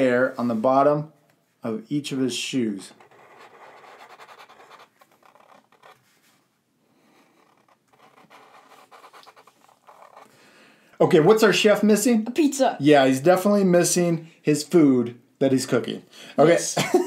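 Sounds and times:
markers scratching on paper: 2.7 - 6.2, 7.0 - 10.3.

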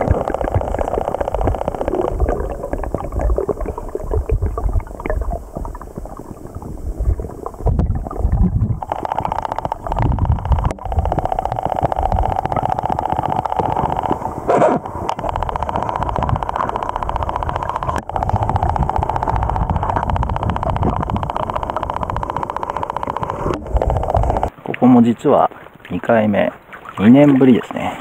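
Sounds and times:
underwater stream gurgling: 0.0 - 24.8.

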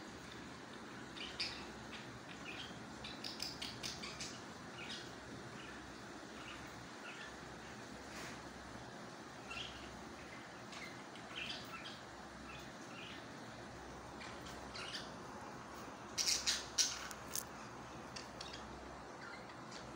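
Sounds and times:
parakeet chicks chirping and squawking: 0.1 - 19.9.

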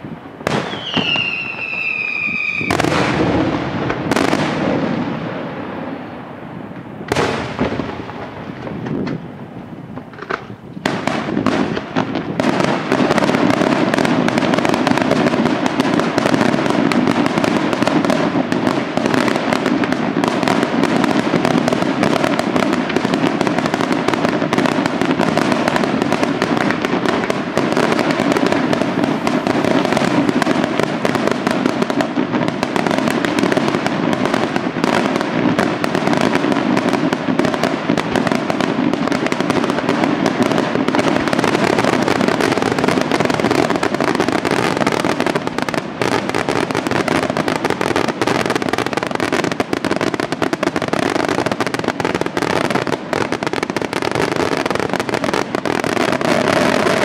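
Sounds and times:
fireworks bursting and crackling: 0.0 - 57.0.

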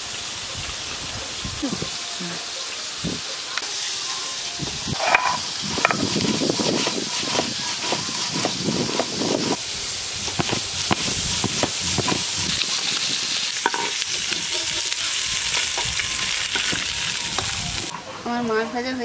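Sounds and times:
fish sizzling in hot oil: 0.0 - 17.9
spatula scraping pan: 5.0 - 9.6, 10.2 - 17.3.

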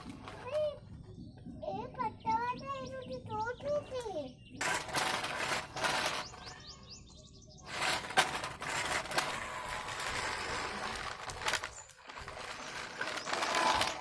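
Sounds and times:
toy truck scraping on concrete: 4.6 - 6.7, 7.7 - 14.0.

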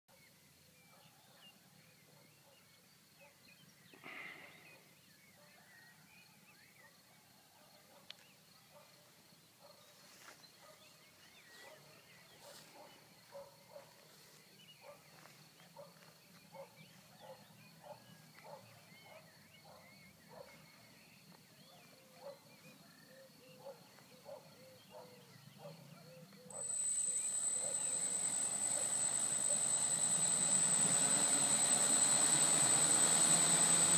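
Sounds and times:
faint steady high tone: 26.5 - 33.9.

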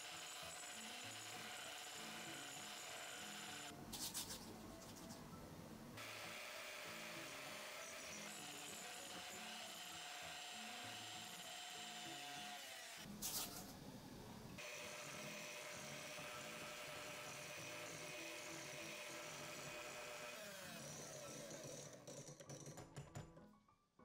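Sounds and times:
electric hand mixer whipping: 0.0 - 3.7, 6.0 - 13.1, 14.6 - 22.0.

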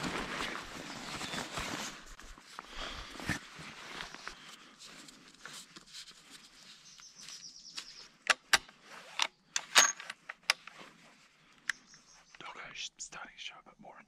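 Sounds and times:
soft rustling: 0.0 - 7.9.

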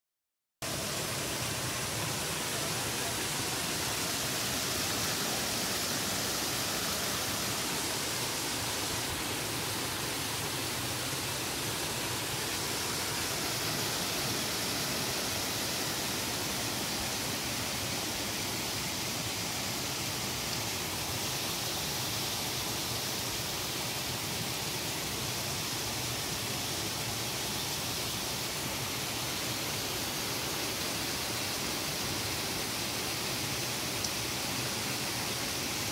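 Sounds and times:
waterfall rushing and splashing: 0.6 - 35.9.

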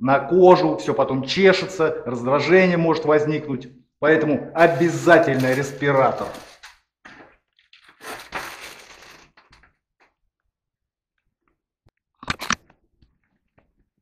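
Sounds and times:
respirator mask crinkling: 4.6 - 10.1.

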